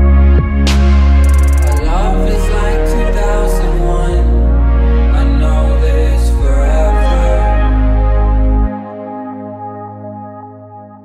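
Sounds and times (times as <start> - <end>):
deep bass note: 0.0 - 8.8
sustained synth chords: 0.0 - 11.0.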